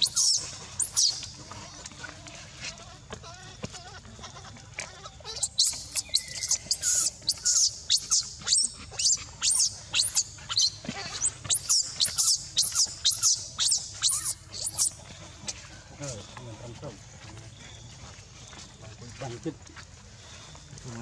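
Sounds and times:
baby monkey shrieking: 0.0s - 1.6s, 4.8s - 15.0s.

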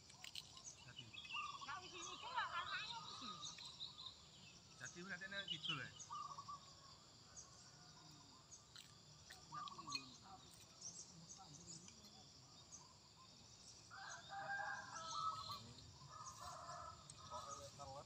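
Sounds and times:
small birds chirping: 0.0s - 18.0s
rooster crowing: 13.9s - 17.6s.

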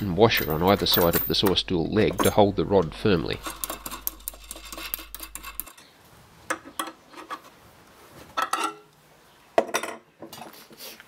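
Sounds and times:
metal nut clinking on threaded rod: 0.0s - 2.4s, 3.3s - 5.8s.

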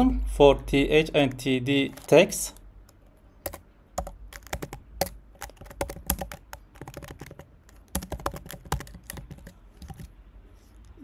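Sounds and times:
typing on computer keyboard: 2.9s - 10.1s.

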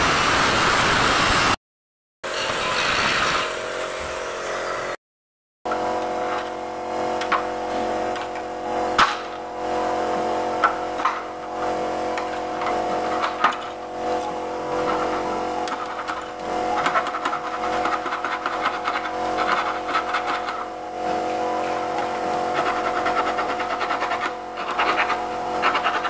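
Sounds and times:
droning hum of held tones: 5.7s - 26.0s
metal tool scraping aluminium frame: 12.2s - 20.7s, 21.9s - 26.0s.

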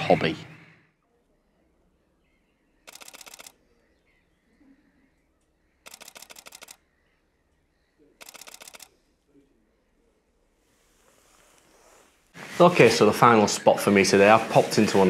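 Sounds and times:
camera shutter rapid clicks: 2.9s - 3.6s, 5.8s - 6.8s, 8.2s - 8.9s.

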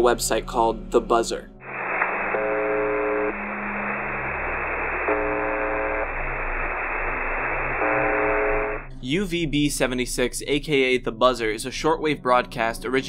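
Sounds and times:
harsh buzz tone: 1.6s - 8.9s
shortwave static hiss: 1.6s - 8.9s.

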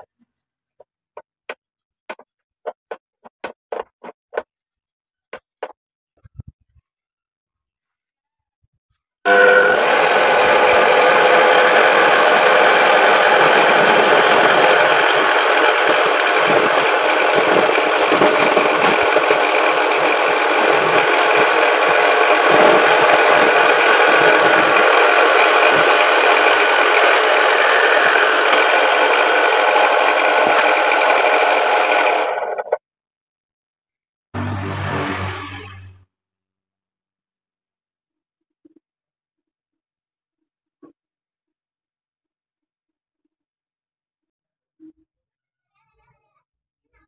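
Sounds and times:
wood lathe running: 9.3s - 32.8s
hacksaw rasping on spinning wood: 10.5s - 32.1s.

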